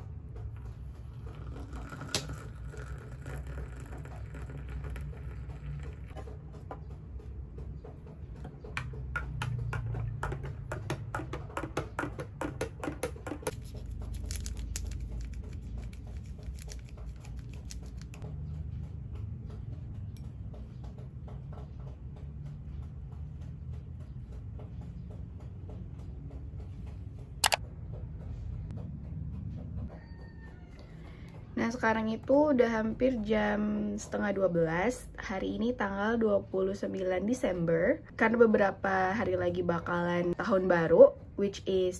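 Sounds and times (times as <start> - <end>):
water pouring into glass: 1.3 - 6.1.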